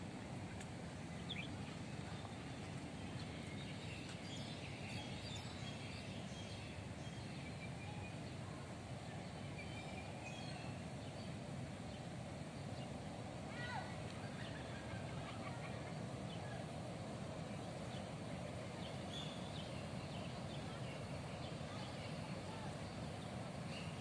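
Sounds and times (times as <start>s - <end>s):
low outdoor background noise: 0.0s - 24.0s.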